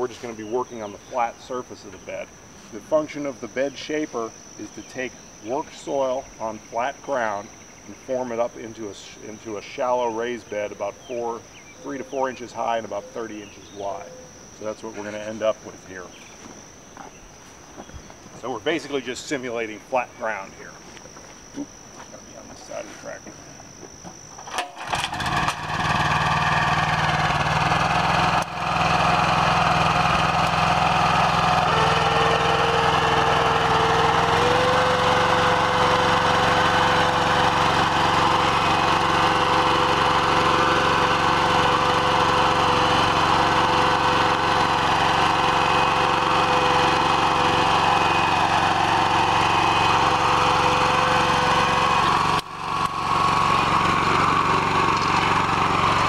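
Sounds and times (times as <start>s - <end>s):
steady whining tone: 0.0s - 56.0s
tractor engine running under load: 24.5s - 56.0s.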